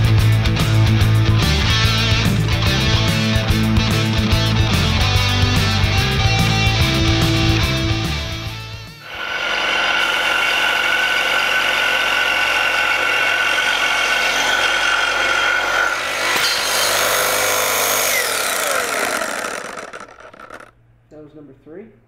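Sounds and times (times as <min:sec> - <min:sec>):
saw winding down: 0:01.5 - 0:20.7
reciprocating saw cutting steel: 0:08.8 - 0:20.7.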